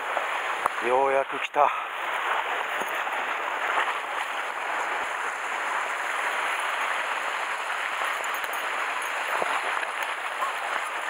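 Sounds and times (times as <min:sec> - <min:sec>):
surf splashing against rocks: 0:00.0 - 0:11.0.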